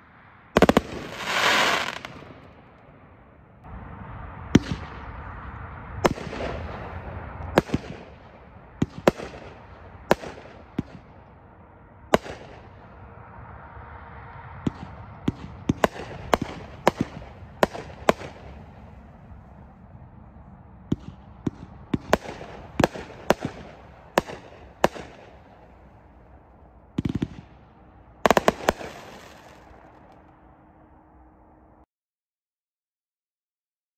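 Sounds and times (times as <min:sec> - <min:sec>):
fireworks crackling burst: 0:00.6 - 0:02.5, 0:28.3 - 0:30.2
fireworks bangs: 0:00.6 - 0:02.7, 0:03.8 - 0:11.4, 0:12.1 - 0:13.0, 0:14.6 - 0:20.0, 0:20.8 - 0:30.3.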